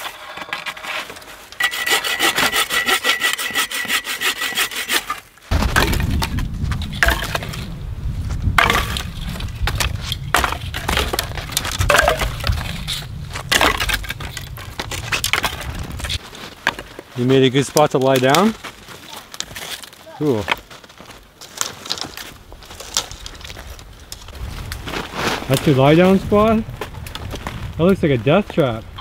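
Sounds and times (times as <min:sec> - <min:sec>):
bow saw cutting wood: 0:00.0 - 0:05.3
wood cracking and scraping: 0:00.0 - 0:28.9
low rumble: 0:05.5 - 0:16.2.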